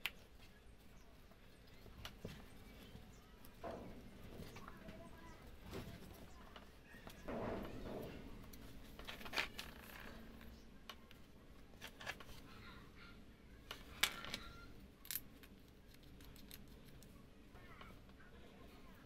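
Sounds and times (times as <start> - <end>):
metal parts clicking and clinking: 9.0 - 10.6, 13.7 - 17.1.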